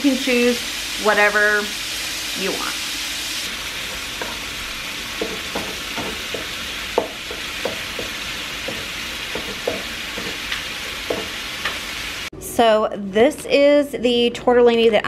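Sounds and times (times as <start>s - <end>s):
meat sizzling in a skillet: 0.0s - 12.3s
wooden spoon tapping pan: 5.1s - 11.8s.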